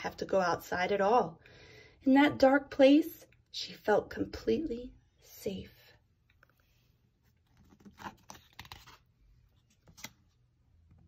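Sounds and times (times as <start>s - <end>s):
book page turning: 6.4s - 10.5s.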